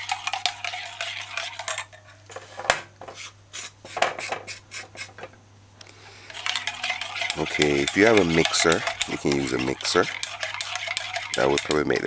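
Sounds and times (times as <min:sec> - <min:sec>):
spoon stirring batter in glass bowl: 0:00.0 - 0:02.0, 0:06.3 - 0:12.0.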